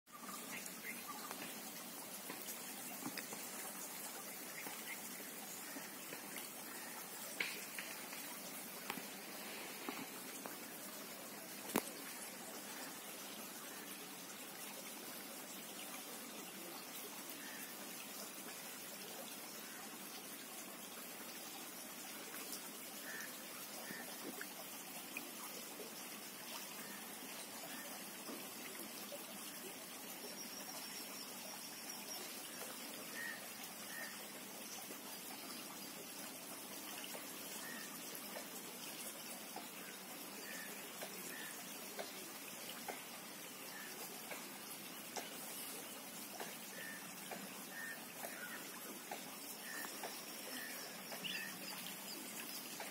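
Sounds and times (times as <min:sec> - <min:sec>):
running water trickling: 0:00.1 - 0:52.9
faint bird chirps: 0:49.5 - 0:52.9.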